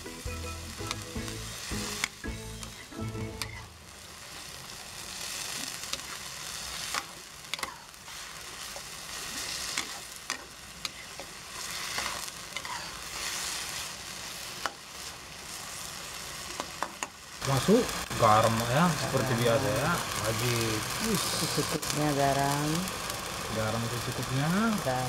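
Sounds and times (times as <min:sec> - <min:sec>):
vegetables sizzling in a wok: 0:00.0 - 0:25.0
metal spatula scraping a pan: 0:09.3 - 0:13.8.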